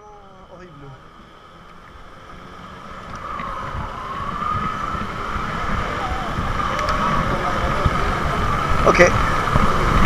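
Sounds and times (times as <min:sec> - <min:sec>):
high-pitched siren-like tone: 0:00.0 - 0:07.9
wind and road rumble: 0:00.0 - 0:10.0.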